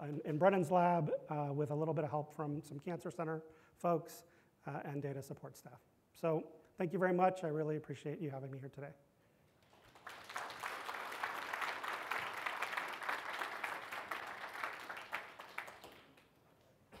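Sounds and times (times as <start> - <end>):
audience applauding: 9.6 - 16.4.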